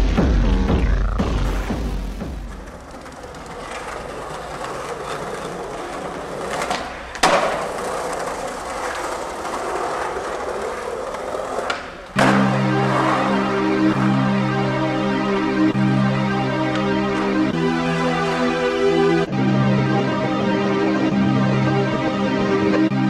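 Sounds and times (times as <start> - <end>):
skateboard wheels rolling: 1.4 - 23.0
skateboard clack: 2.2 - 15.7
synth music: 12.2 - 23.0.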